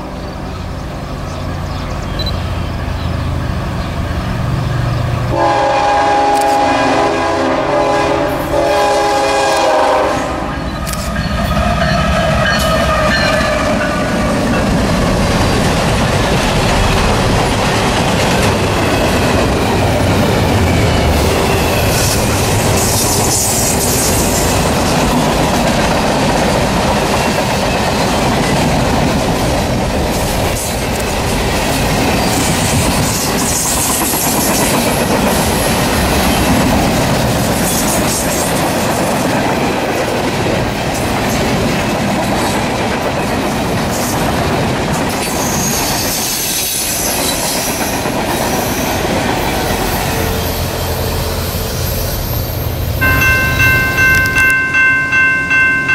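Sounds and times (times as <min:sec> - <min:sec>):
train horn blast: 0:05.3 - 0:10.7.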